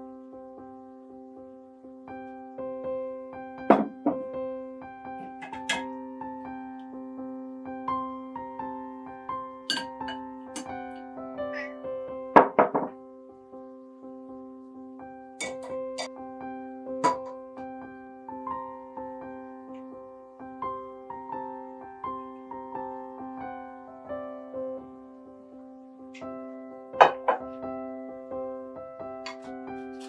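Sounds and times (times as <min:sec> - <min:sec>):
gentle piano music: 0:00.0 - 0:30.0
kitchen utensils knocking: 0:05.4 - 0:05.9, 0:09.7 - 0:10.7, 0:15.4 - 0:16.1, 0:17.0 - 0:17.3.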